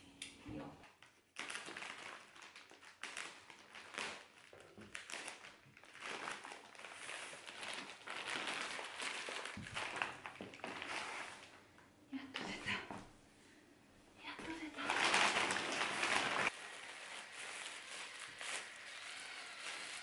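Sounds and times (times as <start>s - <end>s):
paper tearing and crumpling: 1.4s - 11.5s, 14.7s - 20.0s.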